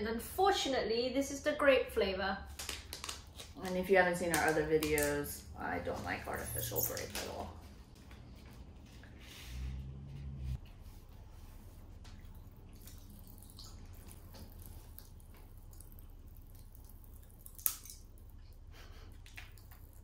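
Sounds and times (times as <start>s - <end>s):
popping candy crackling: 2.5s - 5.4s.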